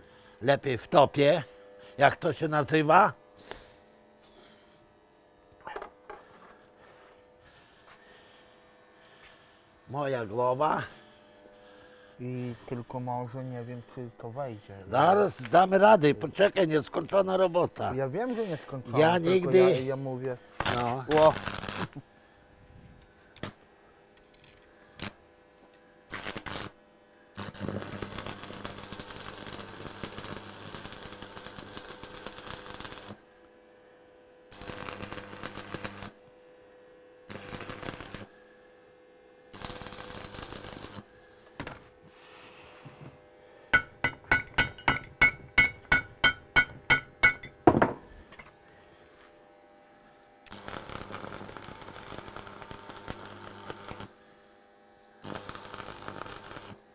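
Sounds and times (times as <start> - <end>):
arc welding crackle: 19.0 - 22.1, 23.0 - 33.4, 34.1 - 41.5, 49.8 - 56.9
metal-on-metal strikes: 43.8 - 48.1.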